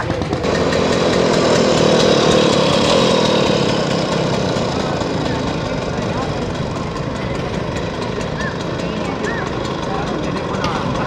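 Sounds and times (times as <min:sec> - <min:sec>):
scooter engine riding off: 0:00.0 - 0:11.0.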